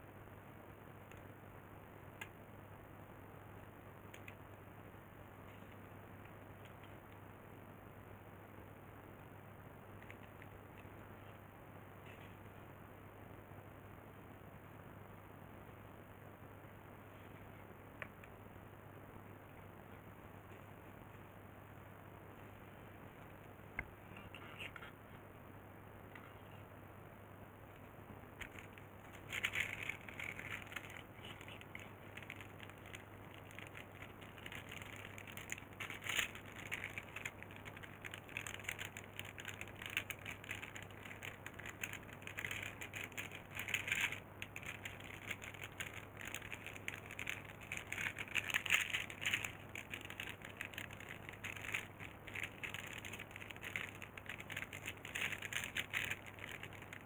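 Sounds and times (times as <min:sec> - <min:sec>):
faint low hum: 0:00.0 - 0:57.0
crackling and rustling handling: 0:10.0 - 0:11.4, 0:27.7 - 0:57.0.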